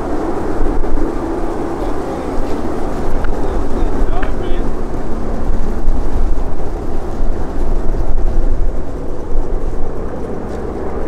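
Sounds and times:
radial engine plane flying over: 0:00.0 - 0:11.0.

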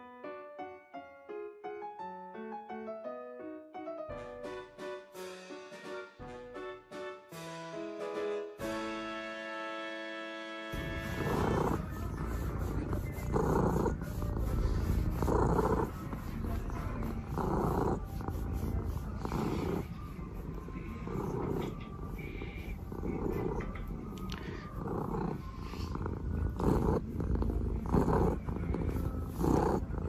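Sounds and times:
cat purring: 0:10.8 - 0:30.0.

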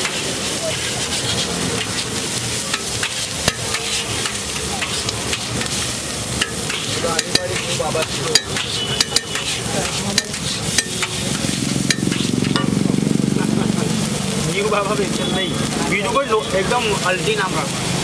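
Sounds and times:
metal spatula scraping griddle: 0:00.0 - 0:12.9
frying oil sizzling: 0:00.0 - 0:18.0.

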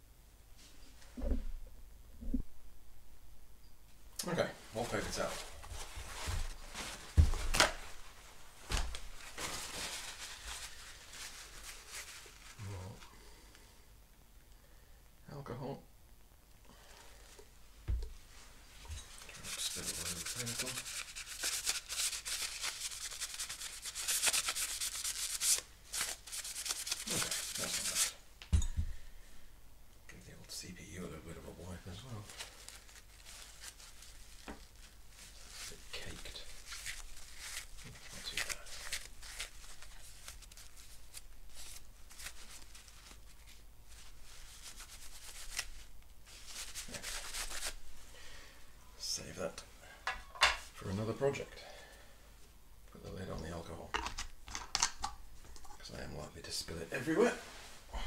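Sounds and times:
paper towel scrubbing metal: 0:19.2 - 0:28.2.

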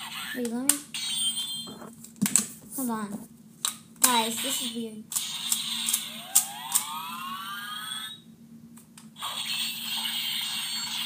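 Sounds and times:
toy electronic sound effects: 0:04.6 - 0:08.2, 0:09.2 - 0:11.0.

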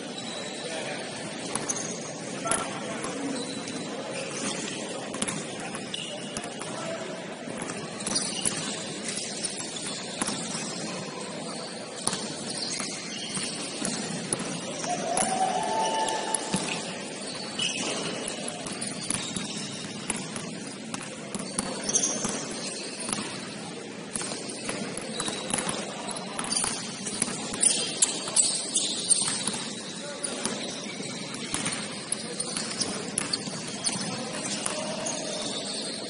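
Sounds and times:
sneakers squeaking on court: 0:00.0 - 0:36.0
basketball bouncing: 0:05.1 - 0:06.7, 0:09.7 - 0:10.8, 0:17.8 - 0:23.5, 0:24.1 - 0:27.8.

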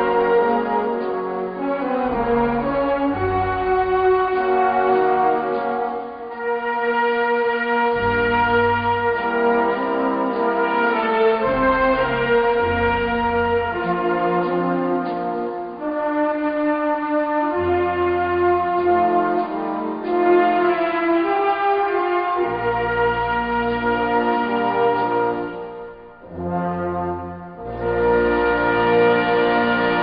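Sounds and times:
sustained brass chords: 0:00.0 - 0:30.0
bass line: 0:07.9 - 0:09.9, 0:11.4 - 0:14.1.

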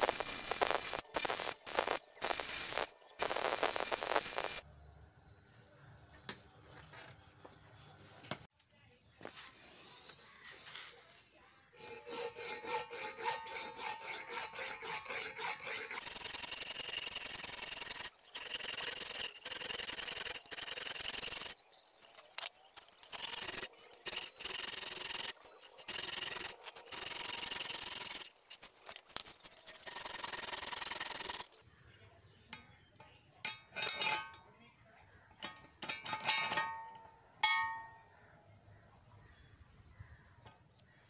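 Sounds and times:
metal file rasping in steel: 0:11.8 - 0:21.6, 0:22.4 - 0:28.7.

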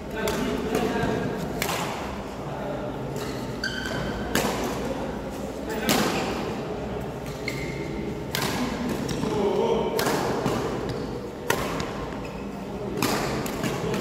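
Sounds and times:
players' voices: 0:00.0 - 0:14.0
racket hitting shuttlecock: 0:00.2 - 0:02.2, 0:03.2 - 0:04.9, 0:05.8 - 0:06.4, 0:07.2 - 0:12.2, 0:12.9 - 0:14.0
shoe squeak: 0:03.6 - 0:04.2, 0:07.4 - 0:07.9.

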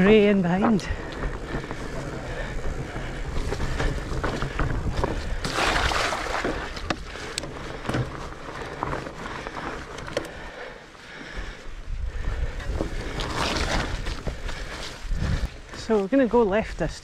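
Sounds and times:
wind buffeting microphone: 0:00.0 - 0:10.6, 0:11.3 - 0:15.8
bike clicks and rattles: 0:00.0 - 0:15.8
bike tyres rumbling on dirt: 0:00.0 - 0:16.9.

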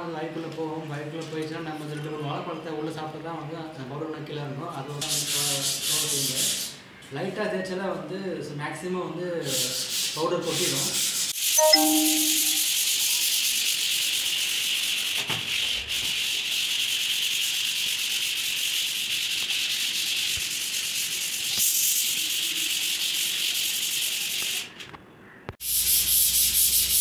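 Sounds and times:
sandpaper rubbing on wall: 0:05.0 - 0:06.8, 0:09.4 - 0:11.5, 0:12.7 - 0:24.8, 0:25.6 - 0:27.0.

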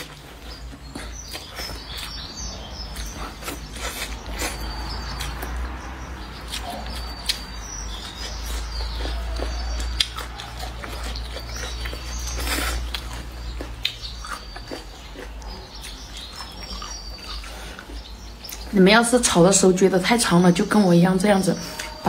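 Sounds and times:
person chewing and slurping noodles: 0:00.0 - 0:18.6.

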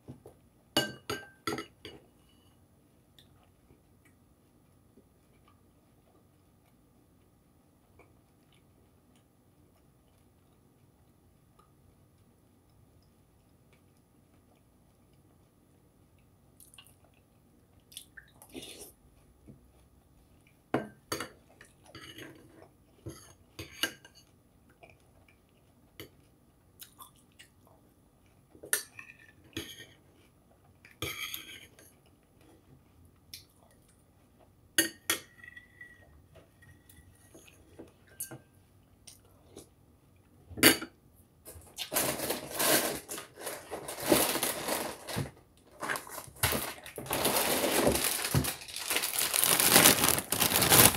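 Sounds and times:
loud crackling: 0:47.1 - 0:50.9.

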